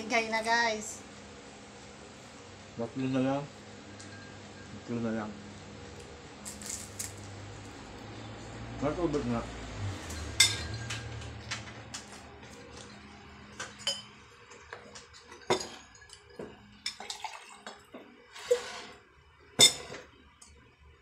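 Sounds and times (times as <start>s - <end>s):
glass and dishes clinking: 4.0s - 4.7s, 10.0s - 11.4s, 13.6s - 17.8s, 19.6s - 20.1s
sipping: 17.0s - 17.8s.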